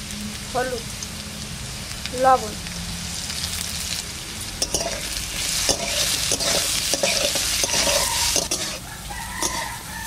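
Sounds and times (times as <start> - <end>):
potato wedges sizzling in oil: 0.0 - 10.0
metal spatula scraping pan: 4.6 - 8.8, 9.4 - 9.8.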